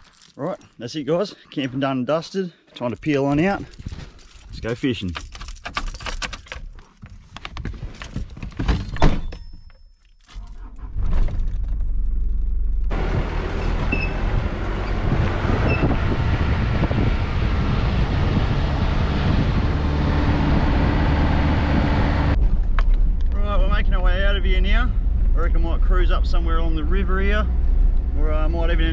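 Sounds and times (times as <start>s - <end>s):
keys jingling and clicking: 0.0s - 0.8s, 3.4s - 7.3s, 7.9s - 10.7s
engine starting: 10.3s - 11.8s
vehicle engine running: 11.4s - 28.9s.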